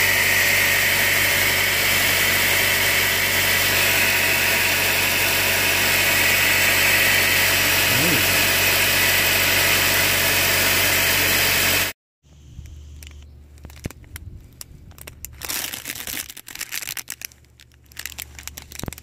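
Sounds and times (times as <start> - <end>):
car engine idling: 0.0 - 11.9
plastic bag crinkling: 13.0 - 19.0.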